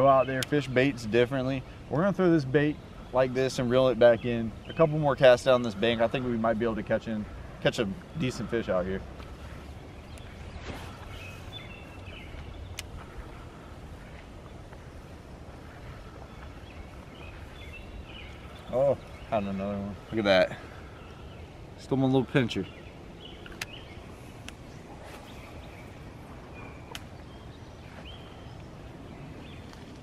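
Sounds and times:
faint bird chirps: 0:00.0 - 0:30.0
light sharp clicks: 0:23.4 - 0:23.8.

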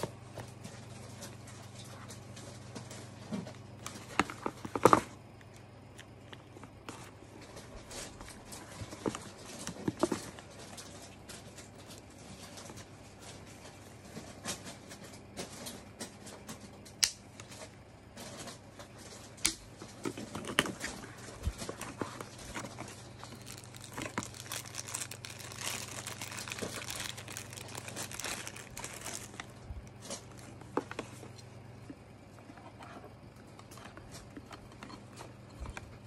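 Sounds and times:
faint low hum: 0:00.0 - 0:36.0
packaging rustling: 0:20.2 - 0:31.3.

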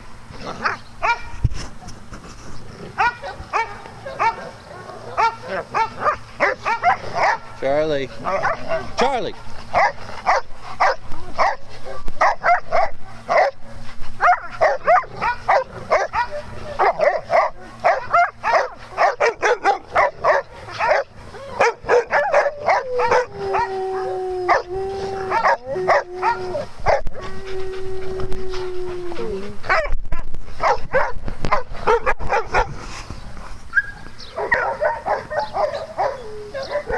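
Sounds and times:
dogs barking and yipping: 0:00.0 - 0:01.5, 0:02.8 - 0:36.9
dog howling: 0:20.9 - 0:29.9, 0:34.4 - 0:36.9.

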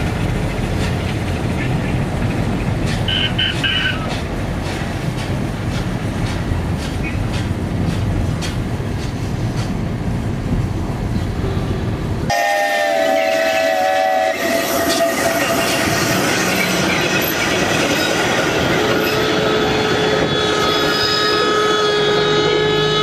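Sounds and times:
wheels clicking over rail joints: 0:00.0 - 0:10.1
tram rumbling on rails: 0:00.0 - 0:23.0
steam whistle: 0:12.3 - 0:16.0, 0:18.8 - 0:23.0.

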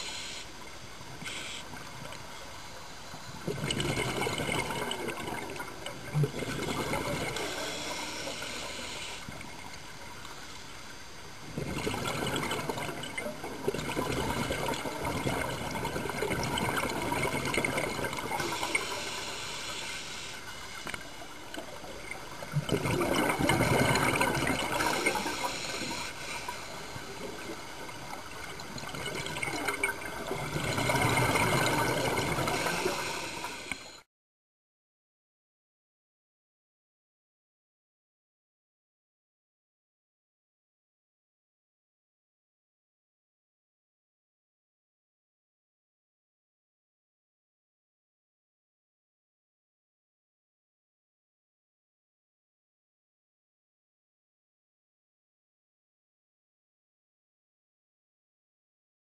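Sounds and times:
regulator bubbling: 0:03.4 - 0:08.5, 0:21.0 - 0:25.8, 0:26.7 - 0:34.0.

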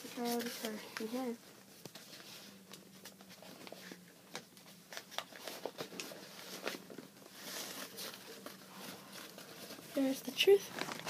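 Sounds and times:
cardboard rustling and crinkling: 0:00.0 - 0:11.0.

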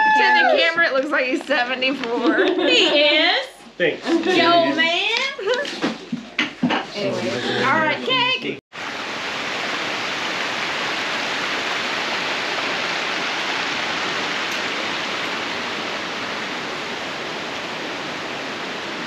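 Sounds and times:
waterfall rushing: 0:07.6 - 0:19.0.

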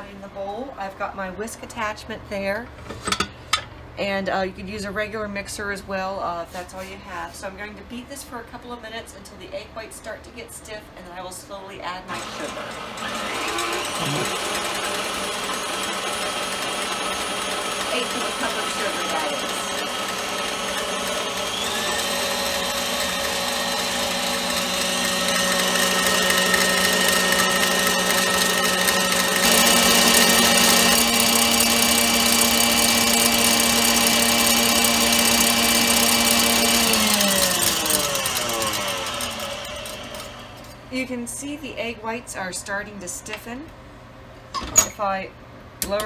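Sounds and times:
stand mixer motor whine: 0:12.1 - 0:40.7
whisk beating in metal bowl: 0:16.4 - 0:40.7.

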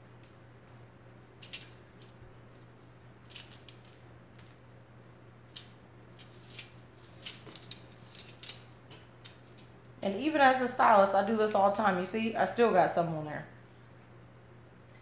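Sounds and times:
faint low hum: 0:00.0 - 0:15.0
aluminium foil crinkling: 0:01.4 - 0:04.6, 0:05.5 - 0:11.1.

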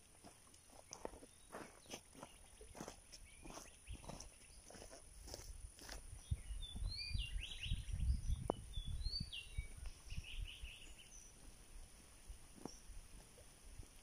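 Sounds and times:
birds whistling: 0:06.2 - 0:11.4.

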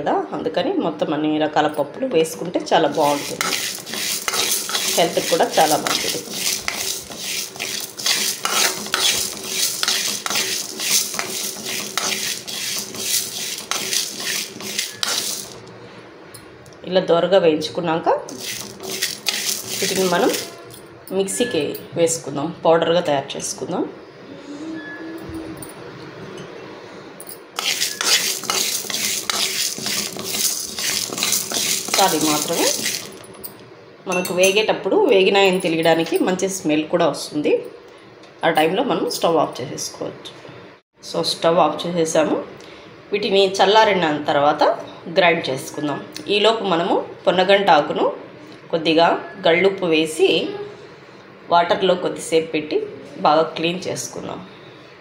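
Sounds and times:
lentils rattling against pan: 0:02.8 - 0:15.7, 0:18.3 - 0:20.8, 0:27.6 - 0:33.4
spoon scraping lentils in pan: 0:02.8 - 0:15.7, 0:18.3 - 0:20.7, 0:27.6 - 0:33.4.

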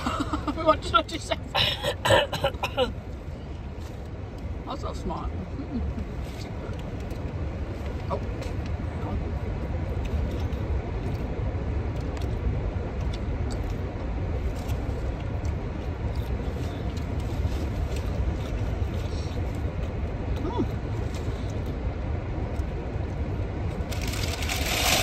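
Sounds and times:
steady low rumble: 0:00.0 - 0:25.0
faint clicks and rustles: 0:09.4 - 0:25.0.

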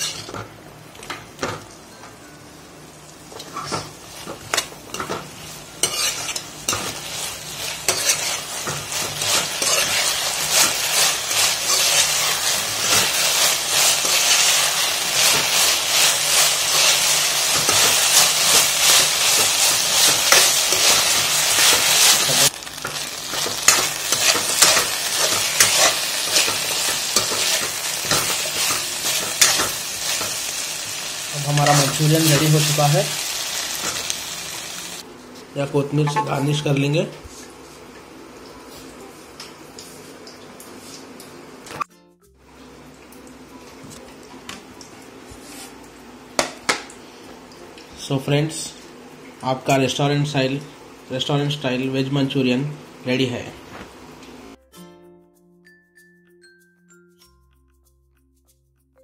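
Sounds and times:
food sizzling in sauce in a wok: 0:00.0 - 0:00.4, 0:02.9 - 0:35.1
spatula stirring and scraping: 0:00.0 - 0:00.4, 0:05.8 - 0:30.5.

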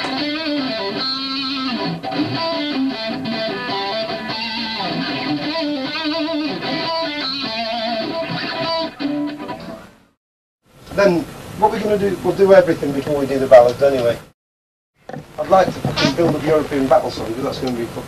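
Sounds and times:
rock music with electric guitar: 0:00.0 - 0:10.1.

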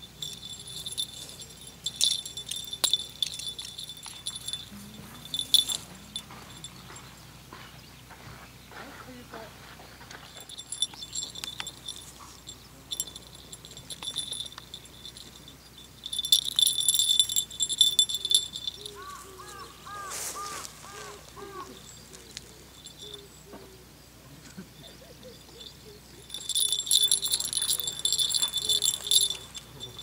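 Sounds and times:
small bell jingling: 0:00.0 - 0:07.3, 0:10.2 - 0:20.0, 0:21.0 - 0:23.8, 0:24.9 - 0:30.0.

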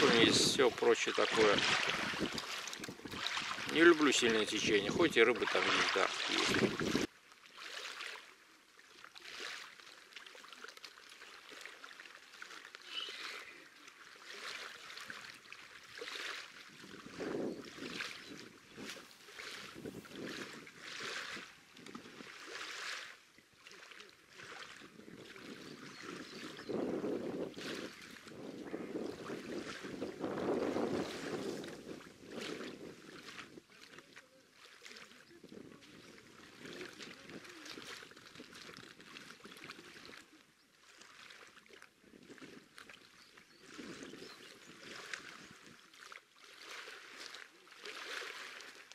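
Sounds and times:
wind buffeting microphone: 0:00.0 - 0:05.6, 0:06.3 - 0:07.1, 0:16.7 - 0:22.3, 0:24.8 - 0:33.7
small waves lapping on pebbles: 0:00.0 - 0:48.9.

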